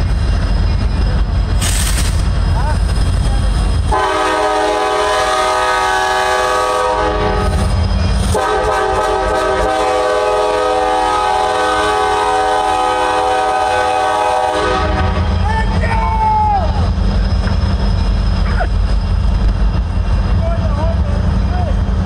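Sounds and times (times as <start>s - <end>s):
locomotive air horn blasts: 3.9s - 7.6s, 8.3s - 15.2s.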